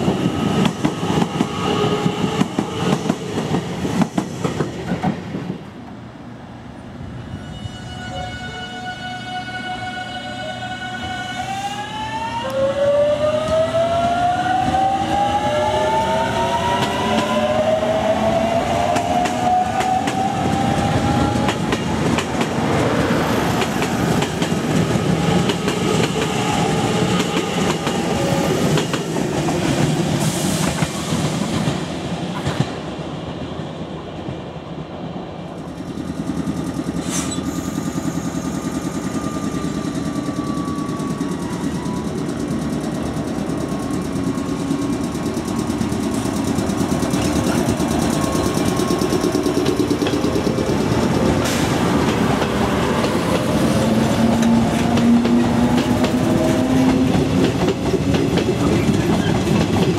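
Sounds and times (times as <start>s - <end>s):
train rumble: 12.5s - 59.9s
train wheels clicking over rail joints: 35.6s - 59.9s.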